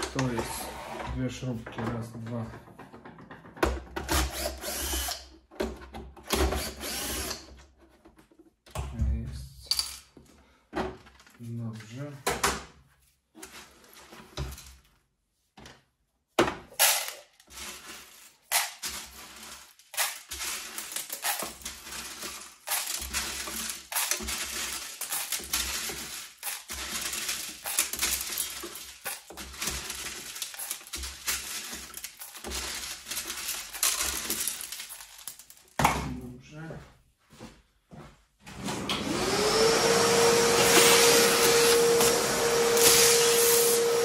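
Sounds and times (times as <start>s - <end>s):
plastic parts rattling and scraping: 0.0s - 8.6s, 9.7s - 12.7s, 13.3s - 15.0s, 15.6s - 36.2s.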